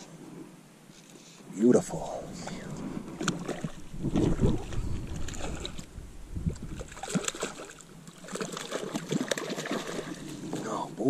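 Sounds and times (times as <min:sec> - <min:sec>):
fish thrashing and splashing water: 0:03.2 - 0:05.9, 0:06.5 - 0:10.6
landing net dipping into water: 0:03.2 - 0:05.9, 0:06.5 - 0:10.6.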